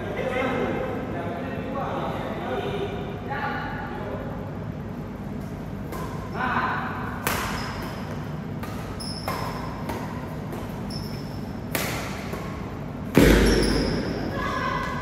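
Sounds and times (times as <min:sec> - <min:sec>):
rackets hitting a shuttlecock: 0:05.4 - 0:06.4, 0:07.1 - 0:15.0.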